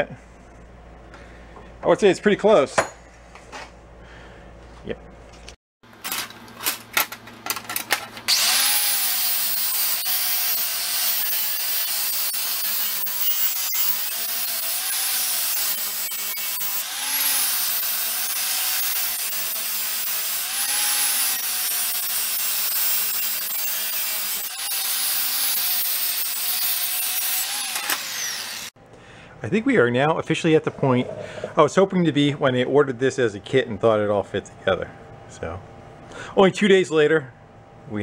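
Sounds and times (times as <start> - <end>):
angle grinder grinding steel: 8.3 - 28.8.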